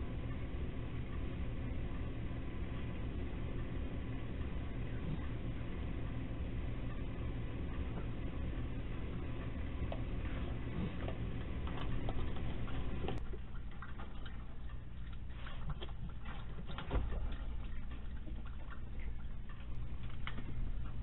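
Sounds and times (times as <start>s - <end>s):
steady low hum: 0.0s - 21.0s
animals crunching dry food: 9.0s - 21.0s.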